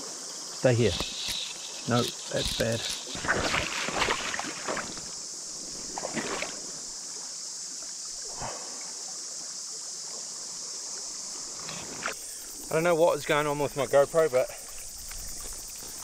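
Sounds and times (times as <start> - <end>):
high drone of insects: 0.0 - 16.0
water splashing in river: 1.1 - 10.6.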